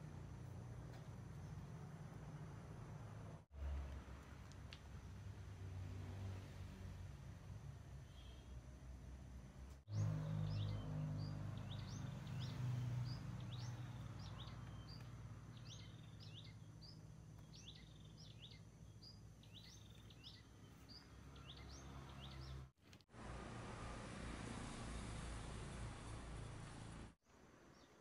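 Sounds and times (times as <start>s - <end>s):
small bird chirping: 9.9s - 22.6s.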